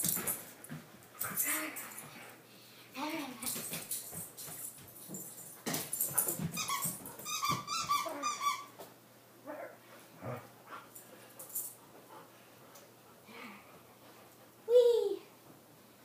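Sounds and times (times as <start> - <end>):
dog whining: 6.6 - 8.8.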